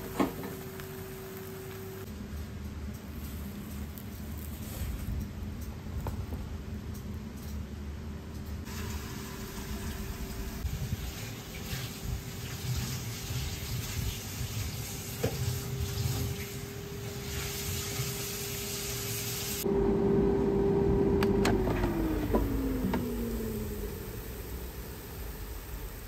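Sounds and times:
air fryer fan hum: 0:00.0 - 0:26.0
light sizzling hiss: 0:00.3 - 0:05.7, 0:08.6 - 0:19.6.

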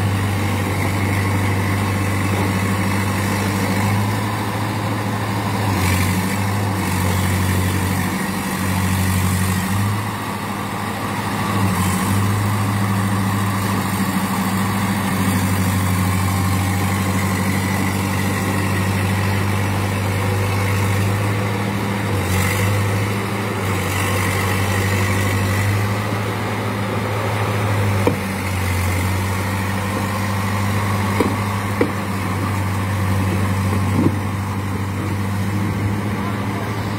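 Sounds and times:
bulldozer diesel engine running: 0:00.0 - 0:36.9
sharp knocks: 0:31.2 - 0:32.0.

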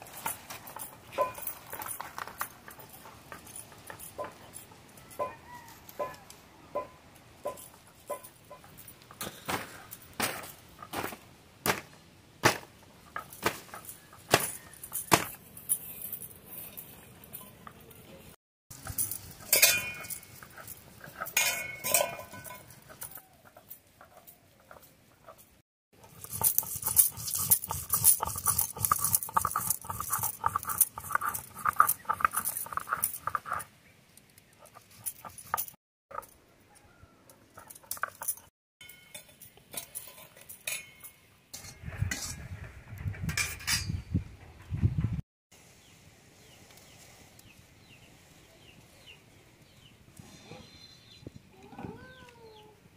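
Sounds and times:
grinding stone scraping on slab: 0:26.0 - 0:33.7.

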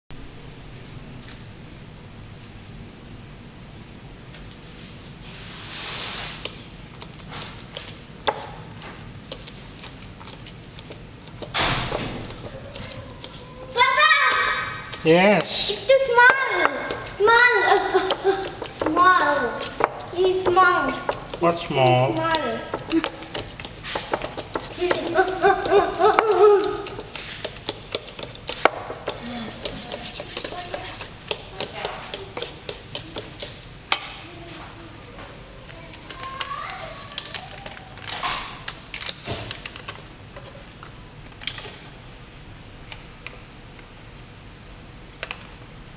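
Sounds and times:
spoon mashing thick batter: 0:06.4 - 0:34.2.

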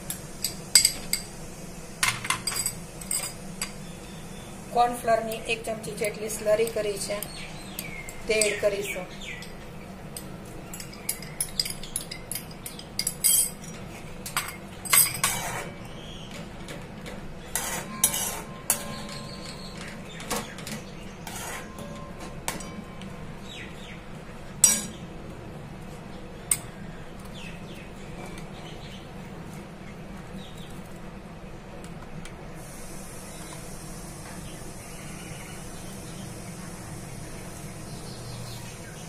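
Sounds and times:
spoon clinking and scraping pan: 0:10.2 - 0:15.8, 0:17.5 - 0:19.8, 0:21.2 - 0:23.0, 0:24.6 - 0:25.0.

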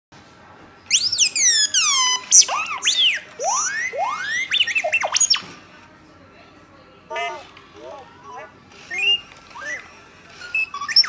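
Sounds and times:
toy robot beeping and whistling: 0:00.9 - 0:05.5, 0:08.8 - 0:11.0.

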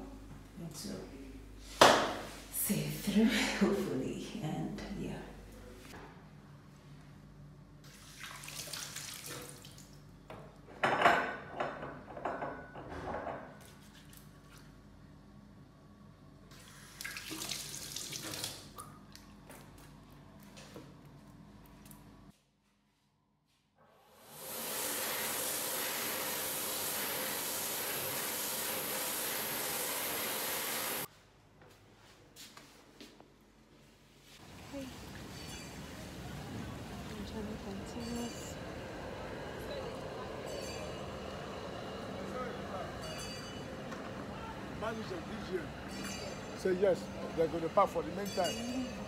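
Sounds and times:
hands washing under water: 0:07.9 - 0:10.0
tap water running into sink: 0:16.9 - 0:18.7
electric hand dryer blowing: 0:24.1 - 0:31.1.

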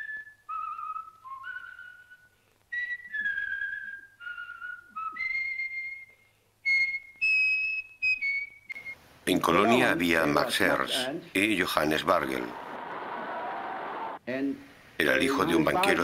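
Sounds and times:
person whistling a slow melody: 0:00.0 - 0:09.0.

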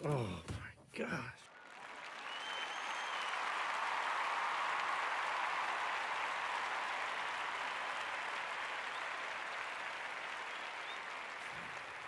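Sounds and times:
crowd applause: 0:01.5 - 0:12.0.

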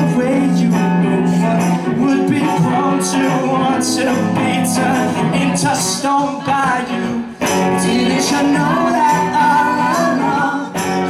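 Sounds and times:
electric guitar playing: 0:00.0 - 0:11.0
person singing: 0:00.0 - 0:11.0.

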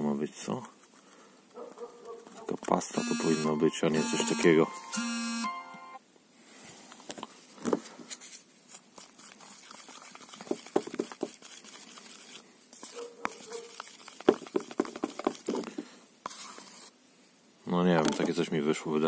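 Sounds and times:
stick scraping plastic cup: 0:09.0 - 0:16.9.

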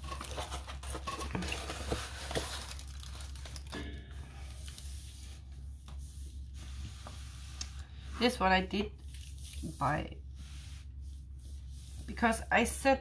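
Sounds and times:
plastic film crinkling: 0:00.0 - 0:03.8.

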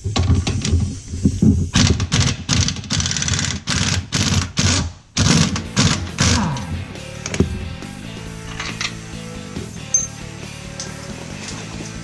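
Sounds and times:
pneumatic impact wrench hammering: 0:01.5 - 0:06.6.

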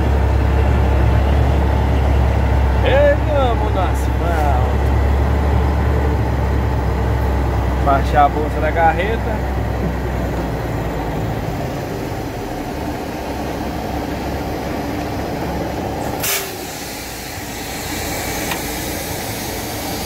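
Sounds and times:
truck diesel engine running: 0:00.0 - 0:20.0
compressed air burst and hiss: 0:16.1 - 0:20.0.

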